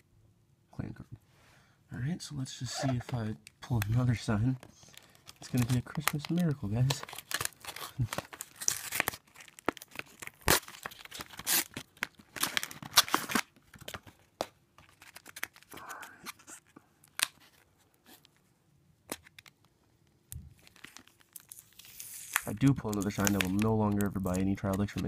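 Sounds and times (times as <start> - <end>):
wrapper crinkling and ripping: 3.6 - 18.4, 20.4 - 25.0.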